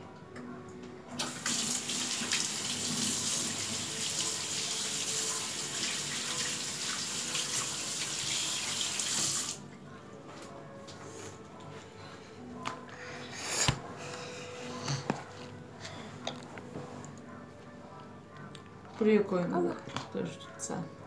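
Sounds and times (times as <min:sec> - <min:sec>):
tap water running into sink: 0:01.2 - 0:09.6.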